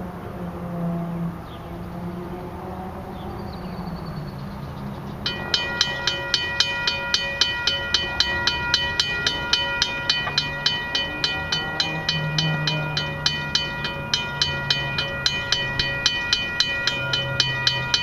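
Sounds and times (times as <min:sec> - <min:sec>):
level crossing warning bell: 0:05.2 - 0:18.0.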